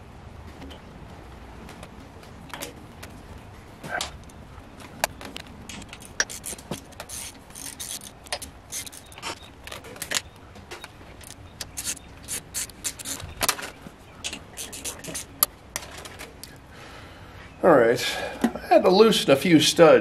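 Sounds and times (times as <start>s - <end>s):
gasket scraping and clicking on studs: 5.0s - 10.3s, 11.2s - 15.5s
hand tool clinking: 5.7s - 10.3s, 11.2s - 13.3s.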